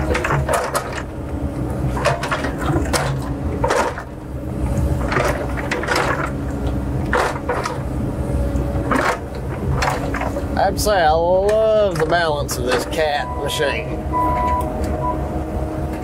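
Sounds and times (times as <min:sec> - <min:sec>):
machine clanks and rattles: 0:00.0 - 0:07.9, 0:08.8 - 0:13.4
diesel engine running: 0:00.0 - 0:16.0.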